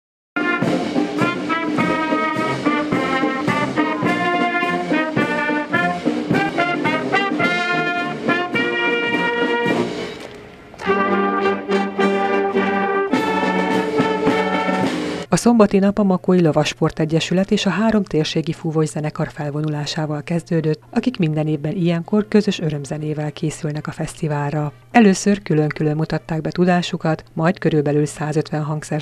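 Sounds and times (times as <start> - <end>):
marching wind band playing: 0.4 - 15.3.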